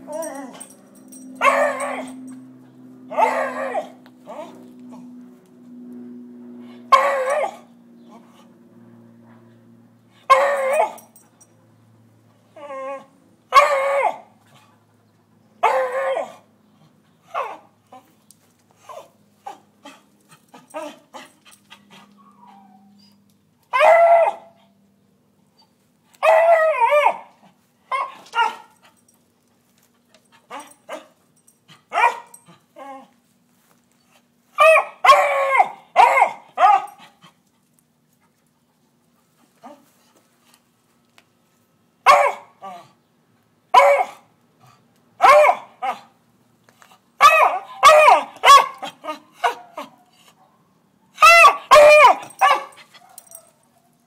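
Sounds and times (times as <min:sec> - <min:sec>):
dog baying: 0:01.4 - 0:02.3, 0:03.1 - 0:04.6
dog barking: 0:31.9 - 0:32.3, 0:34.6 - 0:37.0, 0:42.1 - 0:42.6, 0:43.7 - 0:44.2, 0:45.2 - 0:46.1, 0:47.2 - 0:50.0, 0:51.2 - 0:53.9.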